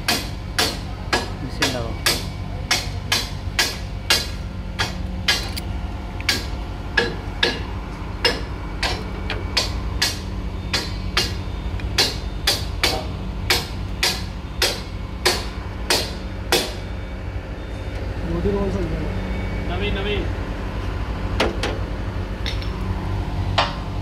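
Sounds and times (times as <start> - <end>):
hydraulic pump humming: 0.0 - 24.0
sharp metallic clicks: 0.1 - 7.6.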